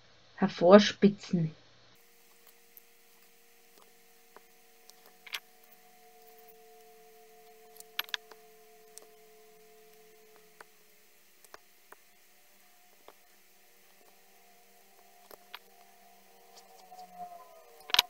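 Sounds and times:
faint steady hum: 0:00.0 - 0:18.0
craft tools clicking on table: 0:03.2 - 0:09.2, 0:15.0 - 0:15.9, 0:17.8 - 0:18.0.

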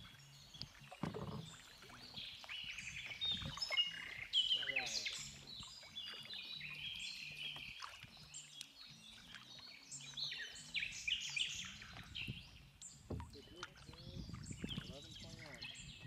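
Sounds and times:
birds singing and chirping: 0:00.0 - 0:16.0.

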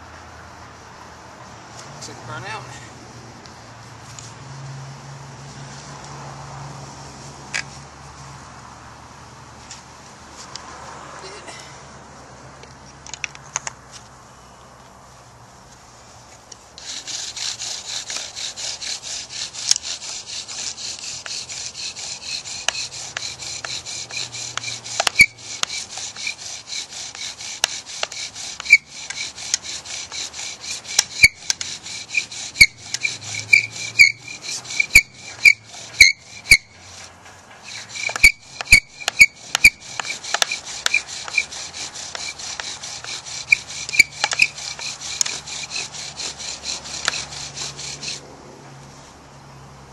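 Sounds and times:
bow drill wooden grinding: 0:16.6 - 0:48.2
squeaks and clicks of wood: 0:22.2 - 0:26.5, 0:27.1 - 0:48.2.

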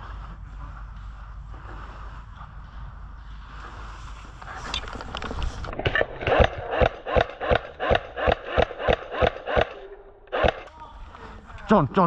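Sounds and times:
sharp knocks: 0:05.8 - 0:10.7.

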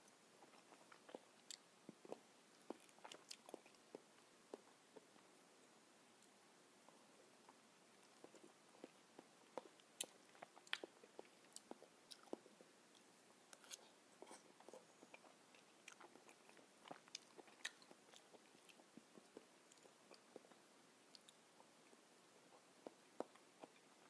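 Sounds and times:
person chewing: 0:00.4 - 0:04.7, 0:07.5 - 0:21.4.

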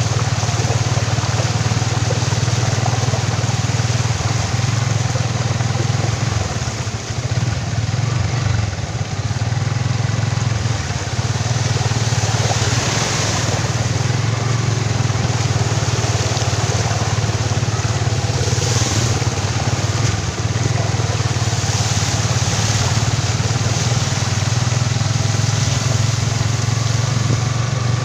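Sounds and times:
motorcycle engine running: 0:00.0 - 0:28.0
water splashing from wheels: 0:00.0 - 0:28.0.

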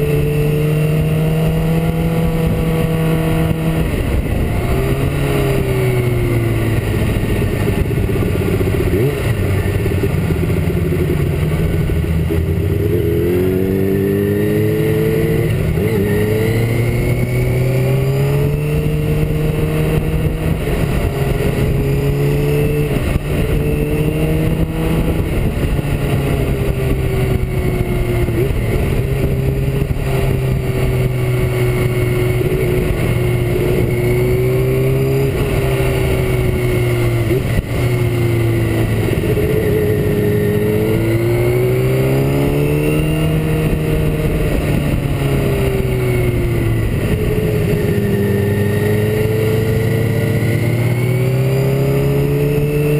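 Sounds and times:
motorcycle engine running: 0:00.0 - 0:52.9
wind rumble: 0:00.0 - 0:52.9.

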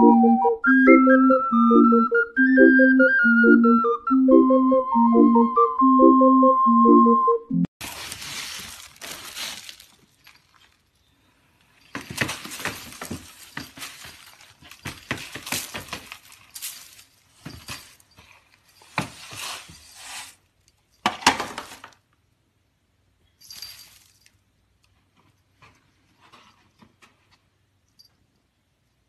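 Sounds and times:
cat litter rattling into plastic box: 0:11.9 - 0:18.0.

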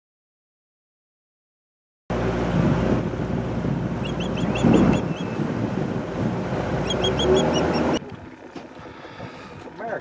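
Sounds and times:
boat motor running: 0:02.1 - 0:10.0
wind on the microphone: 0:02.4 - 0:09.8
osprey chirping: 0:04.0 - 0:05.4, 0:06.8 - 0:08.1.

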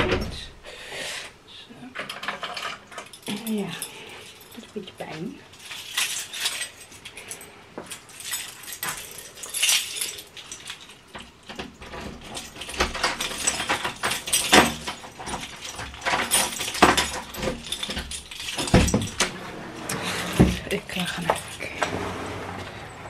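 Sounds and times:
rustling and clicks of handling: 0:01.8 - 0:23.0.

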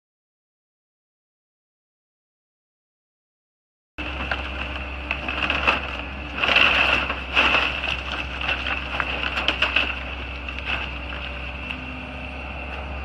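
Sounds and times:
debris crashing down: 0:04.0 - 0:11.7
timber splintering: 0:04.0 - 0:11.9
excavator engine hum: 0:04.0 - 0:13.0.

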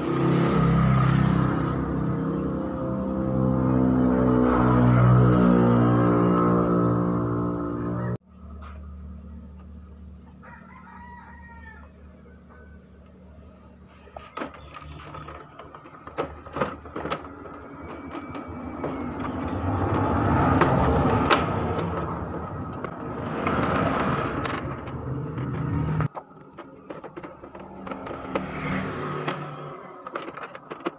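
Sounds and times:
rooster crowing: 0:10.3 - 0:13.0
sharp clicks and knocks: 0:14.0 - 0:30.9.

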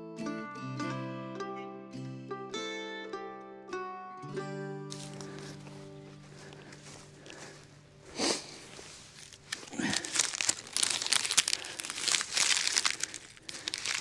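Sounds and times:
microphone rustling and crackling: 0:04.9 - 0:14.0.

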